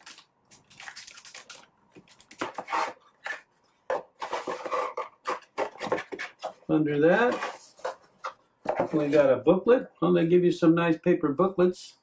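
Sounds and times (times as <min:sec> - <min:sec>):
plastic packaging crinkling: 0:00.0 - 0:03.0.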